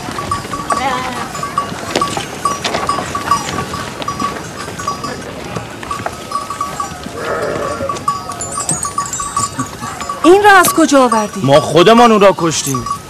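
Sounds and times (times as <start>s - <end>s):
livestock bells tinkling: 0.0s - 13.0s
sheep bleating: 7.2s - 8.0s.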